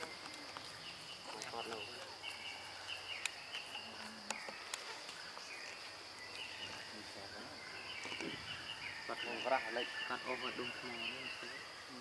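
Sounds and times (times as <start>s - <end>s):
insects droning: 0.0s - 12.0s
short insect chirps: 0.0s - 12.0s
faint clicks: 3.2s - 6.8s.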